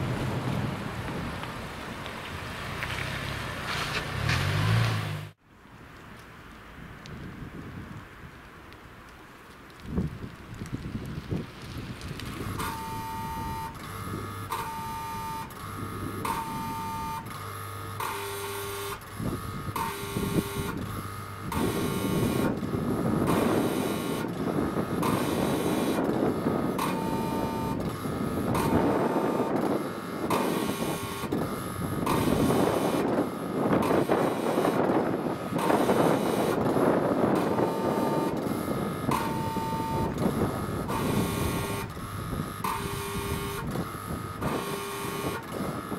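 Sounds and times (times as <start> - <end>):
gusting wind: 0.0 - 45.9
two-tone crossing warning horn: 12.4 - 45.9.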